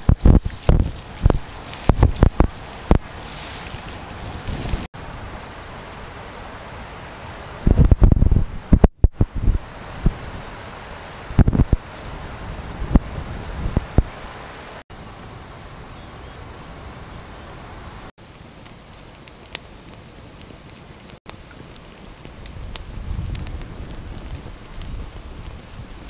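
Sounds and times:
wood fire crackling and popping: 0.0s - 4.9s, 18.2s - 26.0s
wind hiss: 0.0s - 26.0s.

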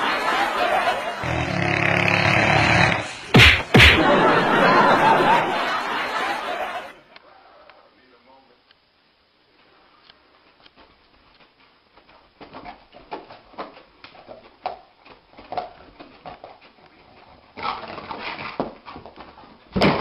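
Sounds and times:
sudden loud burst: 2.1s - 4.3s.

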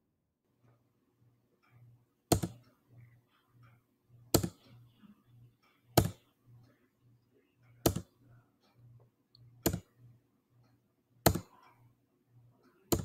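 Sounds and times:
sharp computer clicks: 1.7s - 3.1s, 4.3s - 4.8s, 5.9s - 6.3s, 7.6s - 8.2s, 9.3s - 10.0s, 11.2s - 11.8s, 12.6s - 13.0s.

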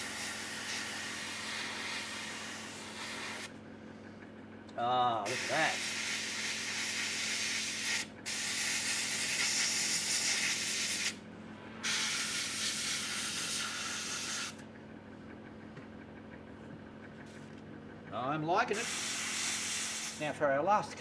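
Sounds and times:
airbrush hissing: 0.0s - 3.5s, 5.3s - 11.2s, 11.8s - 14.6s, 18.8s - 20.3s.

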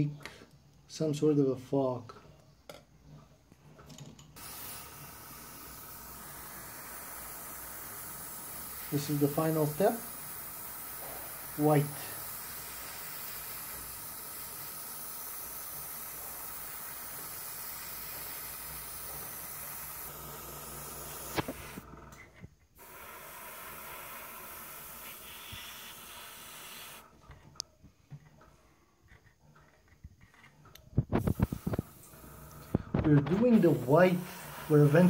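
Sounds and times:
airbrush hissing: 4.4s - 21.9s, 22.7s - 27.2s, 31.1s - 35.0s.

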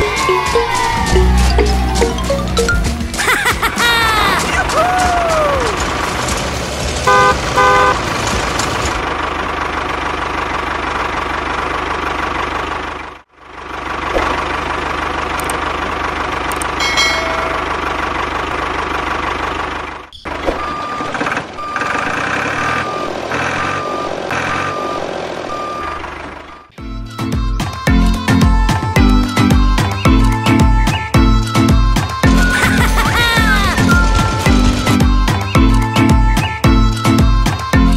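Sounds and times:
tractor engine running: 0.0s - 37.9s
horn honks: 7.0s - 8.0s.

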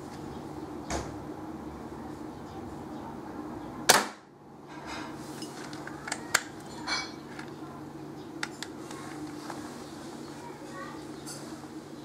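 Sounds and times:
airgun shot: 3.9s - 4.2s.

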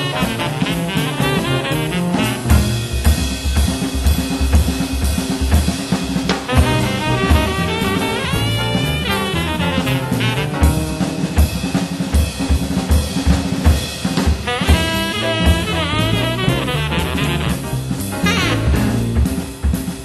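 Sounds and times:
saxophone melody: 0.0s - 3.1s, 6.5s - 11.0s, 14.4s - 19.1s
double bass: 0.0s - 20.0s
drum kit: 0.0s - 20.0s.

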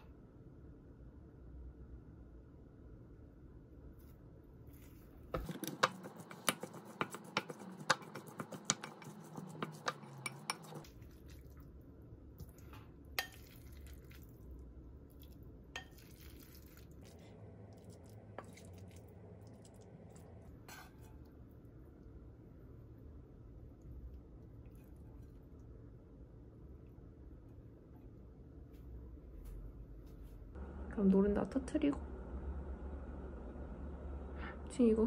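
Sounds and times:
spoon scraping ceramic bowl: 5.4s - 10.9s.

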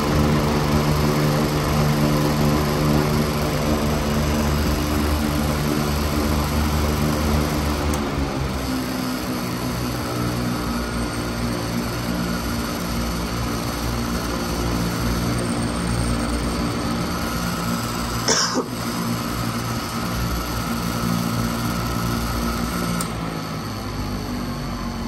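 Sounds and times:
electric fan running: 0.0s - 25.0s
person coughing: 18.2s - 18.8s.

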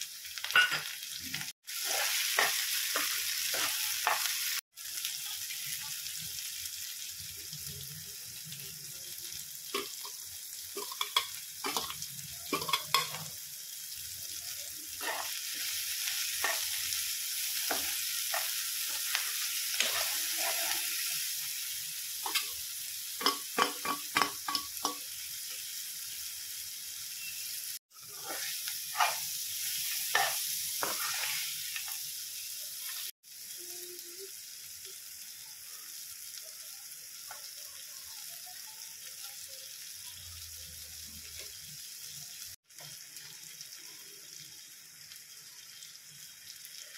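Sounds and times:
vegetables sizzling in oil: 0.0s - 46.9s
metal spoon scraping a pan: 1.8s - 4.3s, 10.8s - 13.3s, 15.0s - 17.0s, 17.6s - 21.1s, 22.2s - 22.6s, 28.0s - 32.0s.

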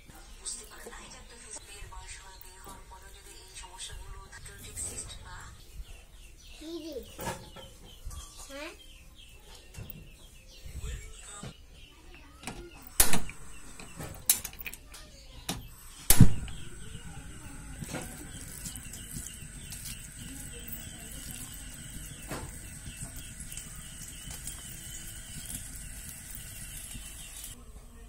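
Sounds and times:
stove ignition clicks: 12.4s - 14.8s, 15.5s - 18.7s
gas burner hissing: 12.8s - 14.7s, 15.5s - 27.6s.

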